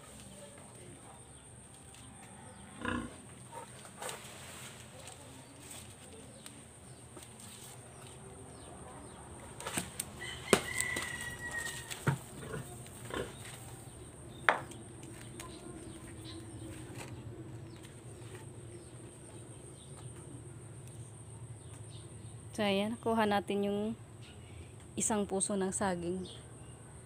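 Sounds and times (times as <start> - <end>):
pole knocking among leaves: 9.6 - 12.3.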